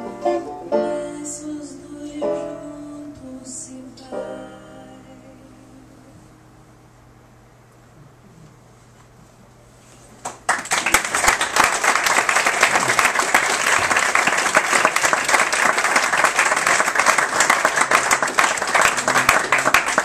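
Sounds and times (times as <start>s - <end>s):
faint hum: 0.0s - 20.0s
audience applauding: 10.2s - 20.0s.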